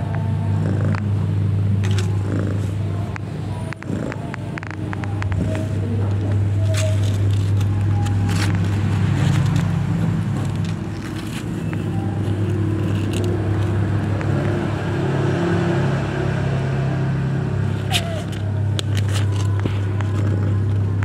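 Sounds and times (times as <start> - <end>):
cat purring: 0.4 - 14.6, 19.3 - 21.0.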